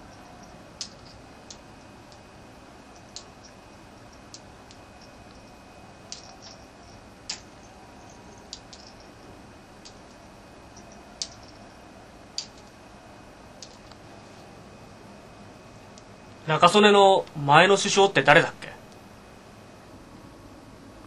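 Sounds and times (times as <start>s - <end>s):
faint steady hiss: 0.0s - 21.0s
sharp clicks: 3.0s - 5.4s, 8.5s - 9.1s, 12.4s - 12.8s.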